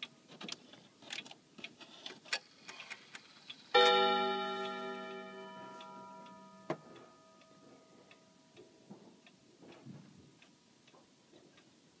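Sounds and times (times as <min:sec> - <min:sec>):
wall clock ticking: 0:00.0 - 0:00.6, 0:03.0 - 0:12.0
clock strike ringing: 0:03.7 - 0:08.4.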